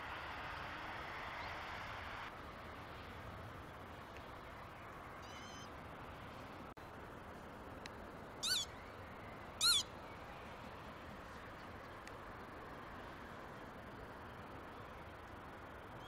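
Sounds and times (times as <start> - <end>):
squeaky animal calls: 5.2 - 5.7, 8.4 - 8.7, 9.6 - 9.9.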